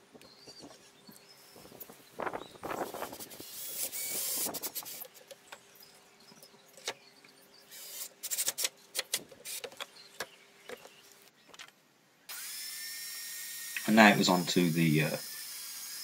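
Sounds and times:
cordless drill driving screws: 0:03.2 - 0:05.2, 0:07.7 - 0:09.7, 0:12.3 - 0:16.0
clicks and knocks of metal and wood: 0:08.2 - 0:11.8.

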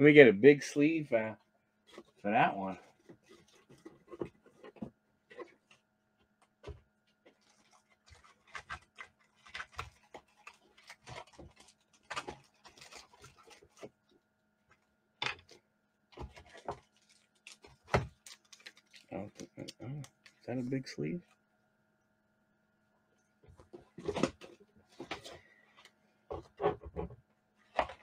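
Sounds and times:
faint steady hum: 0:00.0 - 0:28.0
hands rummaging through supplies: 0:06.6 - 0:14.0, 0:16.2 - 0:20.6.

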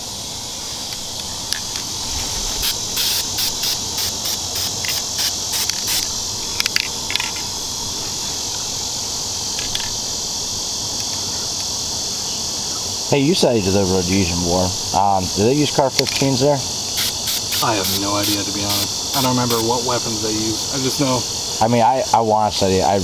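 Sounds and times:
insects chorus: 0:00.0 - 0:23.0
spray paint can hissing: 0:01.7 - 0:07.4, 0:16.8 - 0:19.8.

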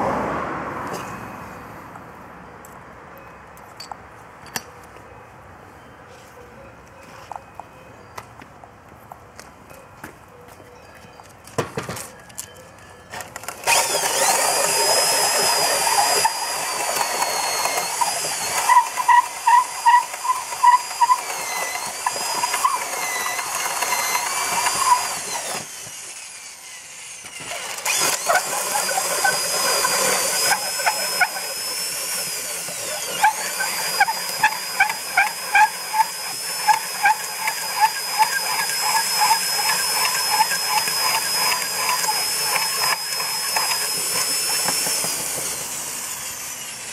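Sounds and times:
electric drill cutting wood: 0:13.4 - 0:46.9.

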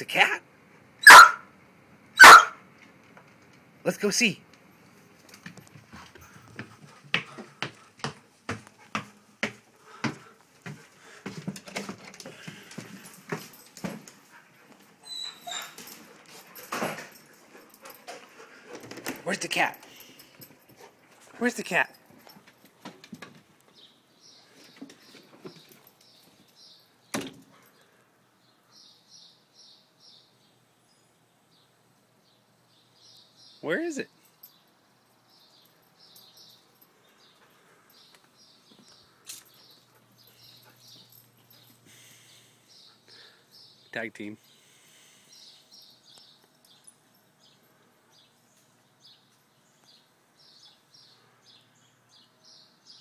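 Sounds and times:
small birds chirping: 0:23.7 - 0:53.0.

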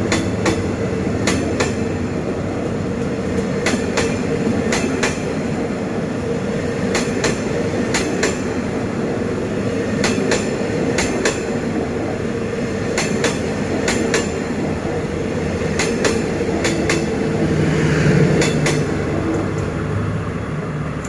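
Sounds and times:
train wheels clacking on rail joints: 0:00.0 - 0:02.0, 0:03.0 - 0:05.4, 0:06.8 - 0:08.7, 0:09.9 - 0:11.7, 0:12.8 - 0:17.2, 0:18.3 - 0:19.7
train rumble: 0:00.0 - 0:21.0.

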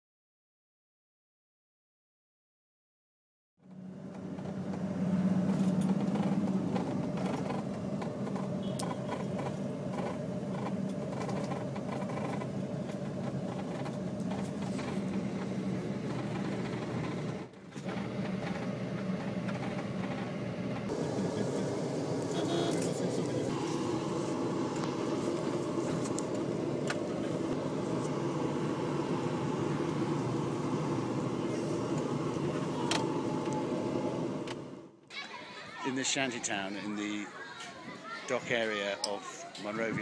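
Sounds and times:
vehicle engine drone: 0:03.6 - 0:35.0.

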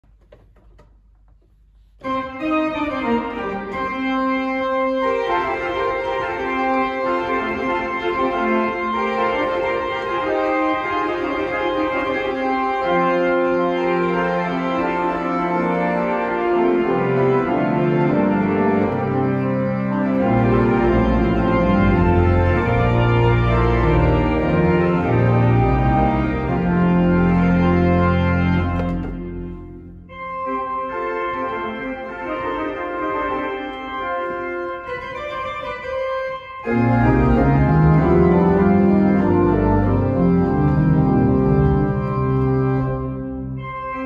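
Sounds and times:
church organ chords: 0:02.0 - 0:44.0
deep bass pedal notes: 0:18.0 - 0:30.3.

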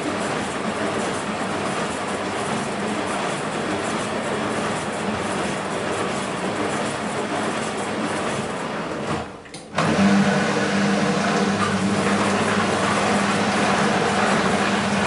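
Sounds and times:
washing machine drum turning: 0:08.3 - 0:15.0
motor humming: 0:09.8 - 0:15.0
laundry and water sloshing: 0:10.0 - 0:15.0.

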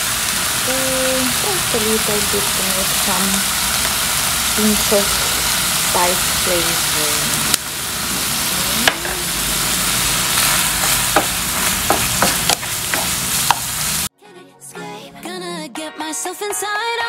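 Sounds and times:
food sizzling in oil: 0:00.0 - 0:14.1
spatula knocking against pan: 0:10.8 - 0:13.7.

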